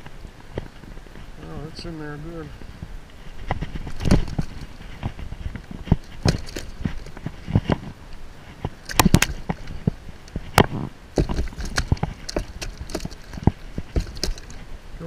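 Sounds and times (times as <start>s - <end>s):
gear knocking against boat hull: 3.8s - 4.7s, 5.9s - 7.8s, 8.9s - 14.6s.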